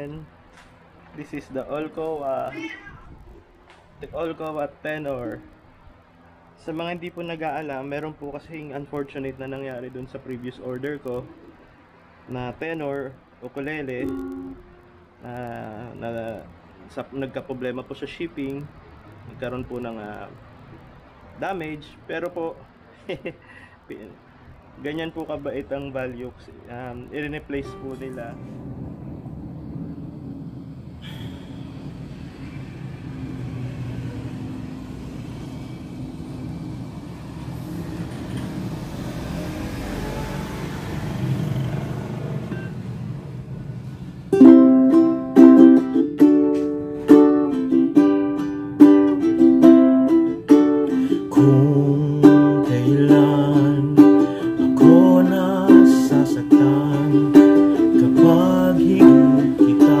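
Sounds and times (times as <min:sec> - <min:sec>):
ukulele strummed chords: 0:14.0 - 0:15.2, 0:27.5 - 0:28.3, 0:44.3 - 1:00.0.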